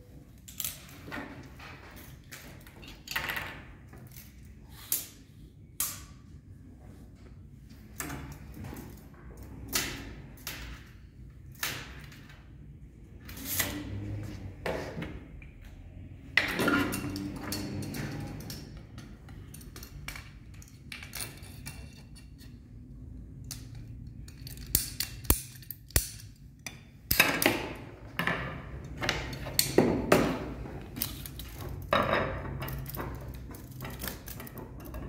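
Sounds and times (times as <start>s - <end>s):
hand tools clicking and tapping: 16.6s - 22.6s, 23.3s - 27.7s.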